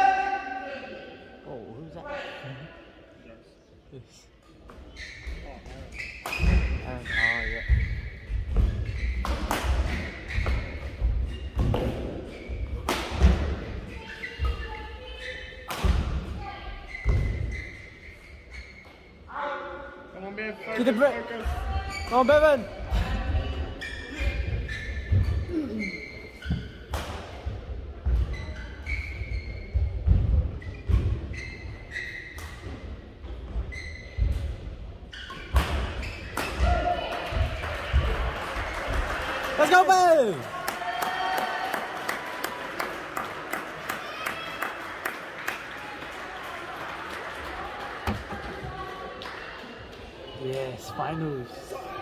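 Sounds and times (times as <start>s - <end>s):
shoes squeaking on court: 4.7s - 12.8s, 16.8s - 19.2s, 23.7s - 26.9s, 28.0s - 30.0s, 30.6s - 32.6s, 33.2s - 34.5s.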